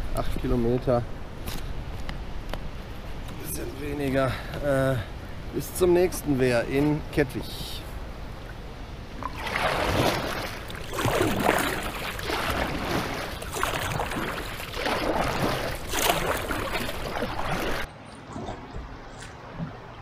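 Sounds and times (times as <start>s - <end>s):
kayak paddle splashing in water: 9.2s - 17.9s.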